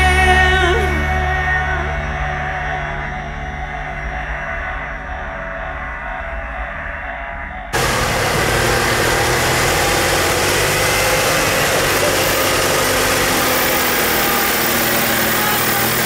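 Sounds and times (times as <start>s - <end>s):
tractor diesel engine running: 7.8s - 16.0s.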